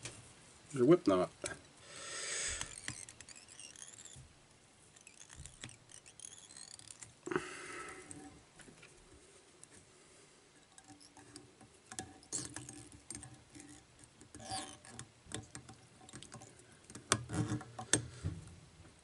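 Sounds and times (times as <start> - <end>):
thread rustling: 1.4 - 9.8.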